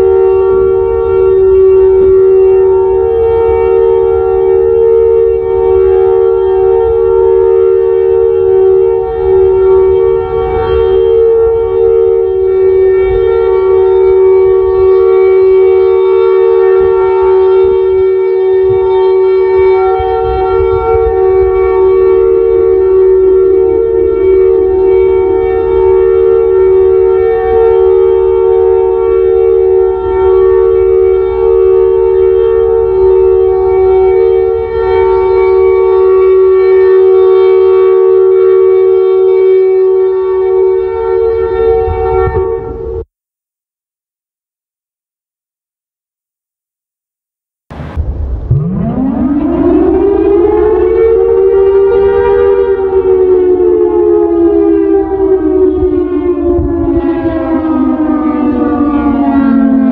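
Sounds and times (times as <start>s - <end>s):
electronic siren steady tones: 0.0s - 43.1s, 47.7s - 59.9s.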